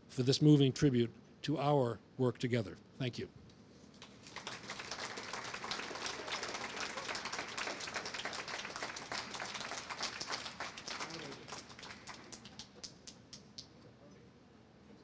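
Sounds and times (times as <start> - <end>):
audience applauding: 4.0 - 13.3.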